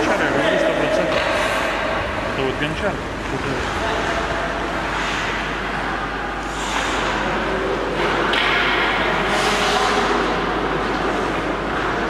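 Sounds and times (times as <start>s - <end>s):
skate blades scraping ice: 6.4s - 7.4s, 9.2s - 12.0s.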